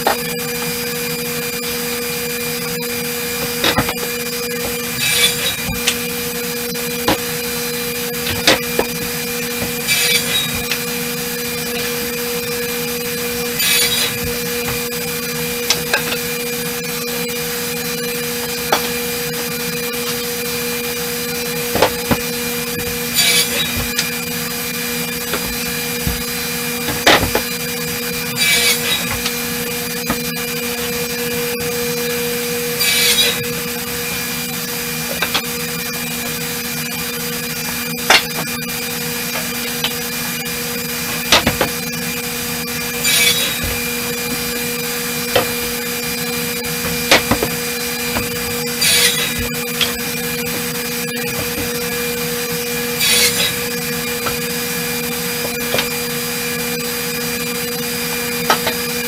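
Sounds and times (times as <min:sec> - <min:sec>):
woodworking machine humming: 0:00.0 - 0:59.0
wooden boards clattering: 0:21.7 - 0:24.1, 0:25.2 - 0:27.7, 0:41.0 - 0:41.9, 0:46.8 - 0:50.7.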